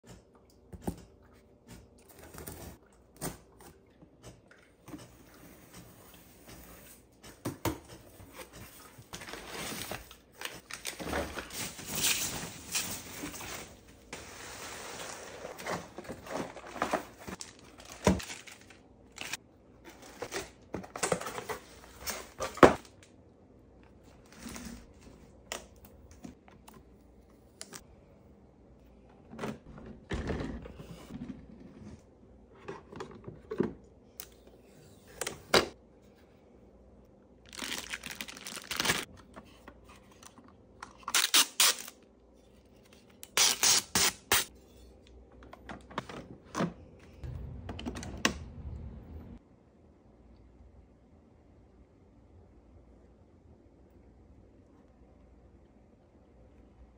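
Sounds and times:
cardboard and plastic wrap rustling: 0:08.2 - 0:23.0, 0:37.5 - 0:40.1
plastic film tearing: 0:37.5 - 0:39.1, 0:41.1 - 0:42.0, 0:43.3 - 0:44.5.

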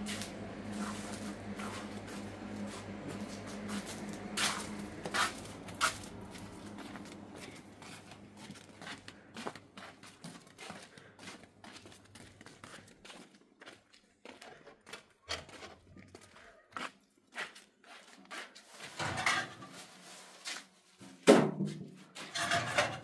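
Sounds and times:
low hum: 0:00.0 - 0:09.4
footsteps in sandals on concrete: 0:00.0 - 0:18.9.

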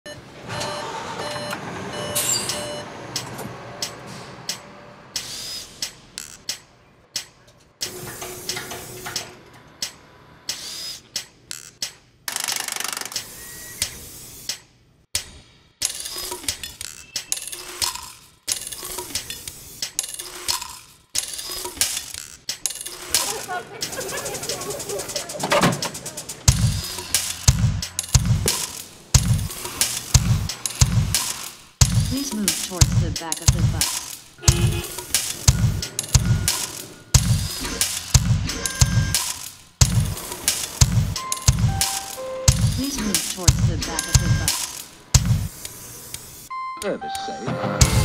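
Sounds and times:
electronic dashboard beeps: 0:00.1 - 0:02.9, 0:32.8 - 0:39.3, 0:40.9 - 0:44.6, 0:46.5 - 0:48.0
tools clinking on metal: 0:02.1 - 0:03.5.

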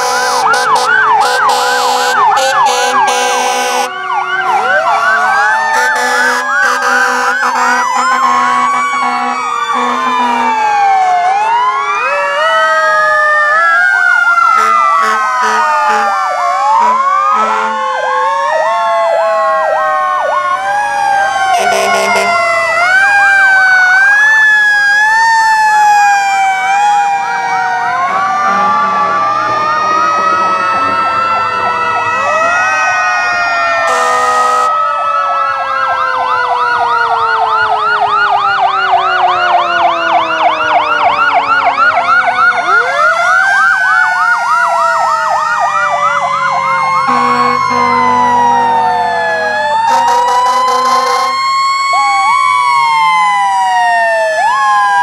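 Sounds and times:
horn blasts: 0:00.0 - 0:05.0, 0:05.7 - 0:10.6, 0:14.6 - 0:16.2, 0:16.8 - 0:17.8, 0:21.5 - 0:22.6, 0:28.4 - 0:29.3, 0:33.9 - 0:34.7, 0:47.0 - 0:51.4
fire truck sirens wailing: 0:00.0 - 0:55.0
rapid siren yelp: 0:00.0 - 0:55.0.

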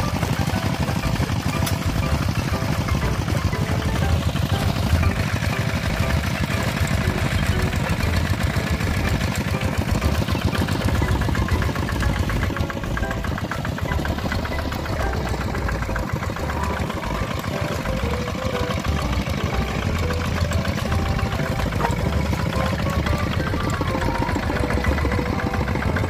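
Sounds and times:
diesel engine running: 0:00.0 - 0:26.0.

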